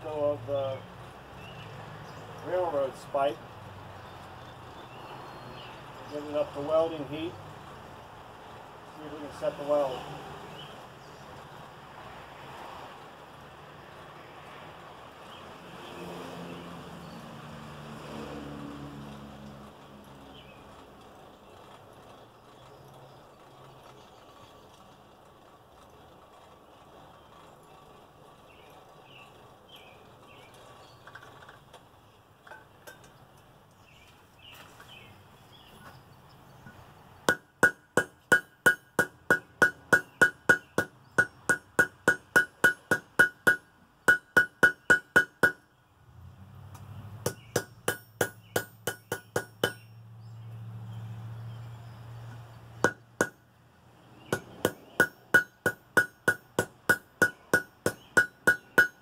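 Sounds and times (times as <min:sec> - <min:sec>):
hammer ringing on anvil: 0:37.3 - 0:45.6, 0:47.3 - 0:49.9, 0:52.8 - 0:53.4, 0:54.3 - 0:59.0.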